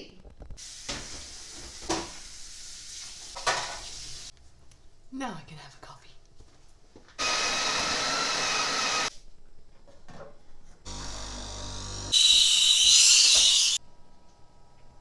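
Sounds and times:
coffee grinder running: 0:07.2 - 0:09.1, 0:10.9 - 0:13.8
espresso pump humming: 0:10.9 - 0:12.3.

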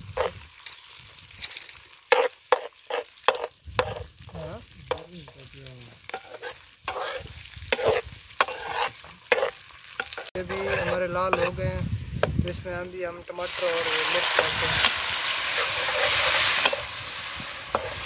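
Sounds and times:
onions sizzling in oil: 0:00.0 - 0:18.0
metal skimmer scraping a pot: 0:06.1 - 0:11.6, 0:15.4 - 0:16.9.

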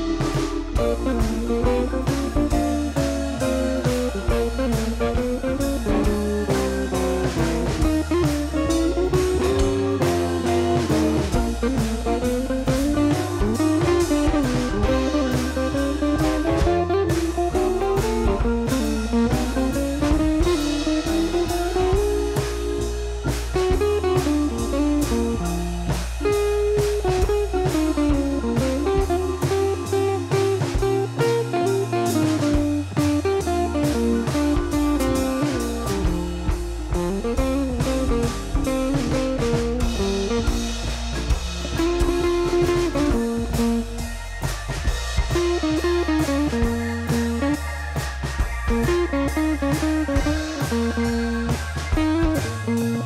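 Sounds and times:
instrumental guitar music with drums: 0:00.0 - 0:53.0.

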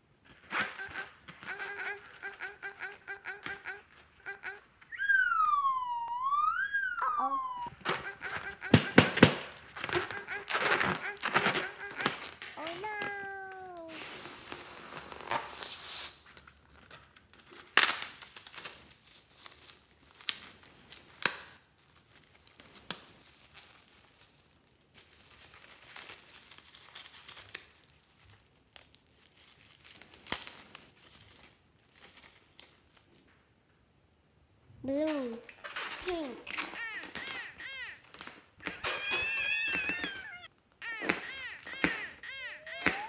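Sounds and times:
balloon rubber tearing: 0:00.3 - 0:05.2, 0:07.7 - 0:16.3, 0:35.7 - 0:43.0
scissors snipping rubber: 0:40.8 - 0:43.0
sharp rubber snaps: 0:40.8 - 0:43.0.

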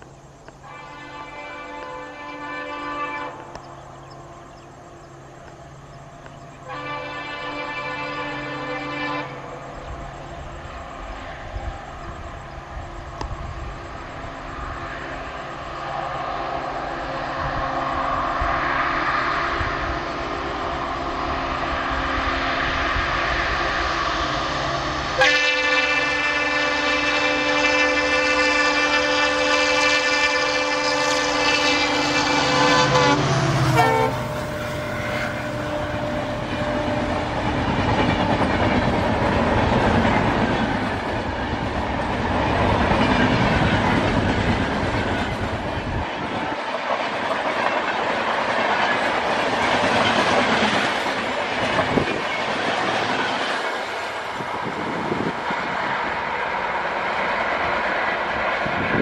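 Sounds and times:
diesel locomotive engine: 0:00.0 - 0:59.0
locomotive horn: 0:00.6 - 0:03.6, 0:06.6 - 0:09.8, 0:25.2 - 0:37.6
train wheels clattering on rails: 0:09.2 - 0:59.0.

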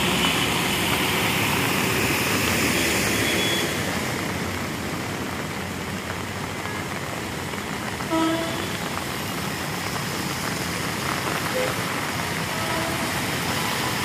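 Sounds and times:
heavy rain: 0:00.0 - 0:14.0
traffic driving through water: 0:00.0 - 0:14.0
vehicle horn honk: 0:12.5 - 0:13.2.

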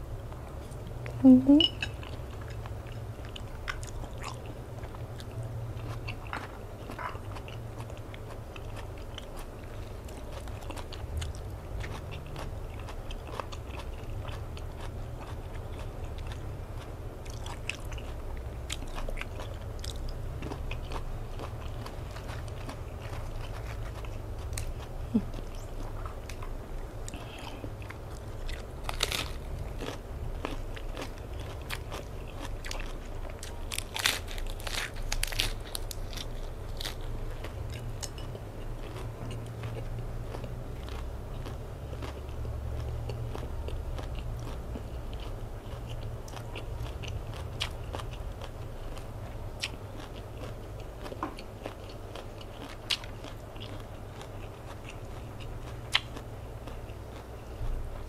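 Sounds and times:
low steady hum: 0:00.0 - 0:58.0
person chewing: 0:00.3 - 0:58.0
lettuce crunching: 0:17.2 - 0:57.3.

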